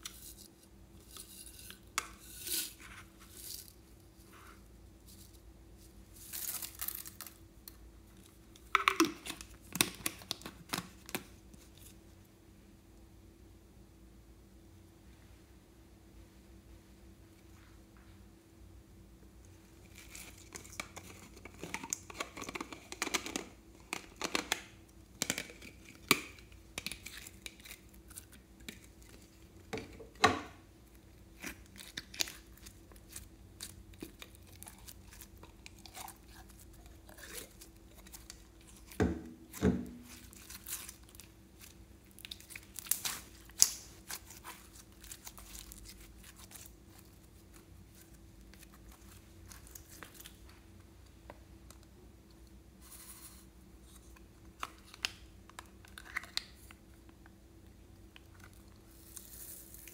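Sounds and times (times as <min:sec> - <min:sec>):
slime crackling and clicking: 0:42.2 - 0:44.6.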